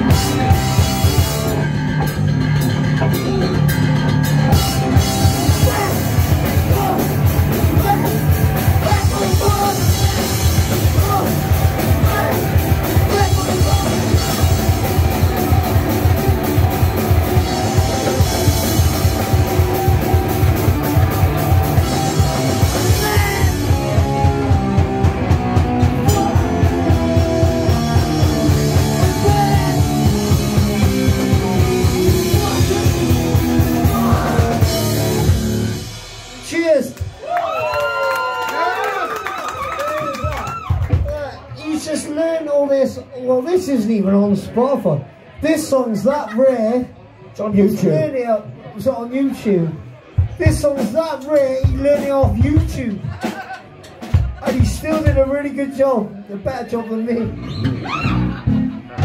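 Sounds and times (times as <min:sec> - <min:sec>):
distorted guitar: 0:00.0 - 0:36.7, 0:57.2 - 0:59.0
punk rock band playing: 0:00.0 - 0:37.2, 0:50.1 - 0:55.6, 0:57.0 - 0:59.0
rapid driving drums: 0:00.0 - 0:37.6, 0:39.5 - 0:42.5, 0:50.1 - 0:55.6, 0:57.2 - 0:59.0.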